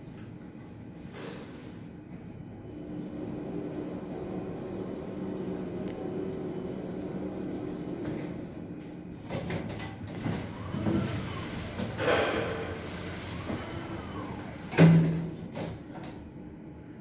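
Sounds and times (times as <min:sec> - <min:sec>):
elevator humming: 0:02.4 - 0:15.2.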